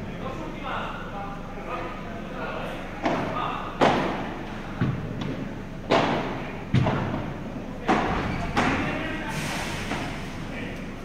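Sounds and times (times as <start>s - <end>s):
ball bouncing on court: 4.8s - 7.2s.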